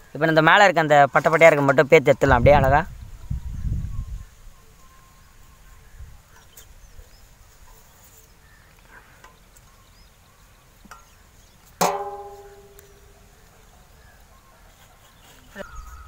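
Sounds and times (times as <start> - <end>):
metal cookware clang: 11.8 - 13.1.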